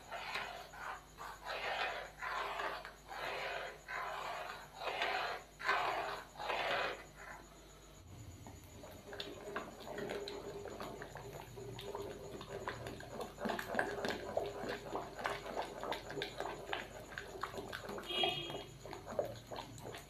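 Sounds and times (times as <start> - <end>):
liquid sloshing: 8.6 - 20.0.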